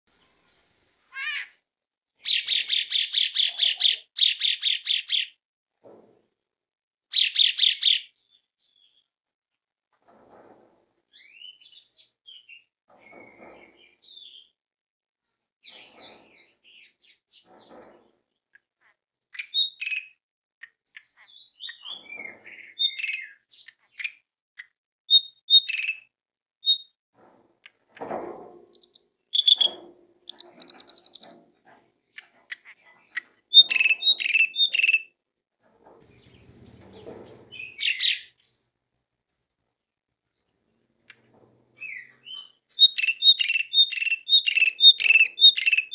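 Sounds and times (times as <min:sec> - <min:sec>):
starling singing whistles and chatter: 0:19.4 - 0:20.2, 0:20.9 - 0:24.2, 0:25.1 - 0:26.9, 0:28.7 - 0:31.4, 0:33.5 - 0:35.1, 0:41.8 - 0:45.9.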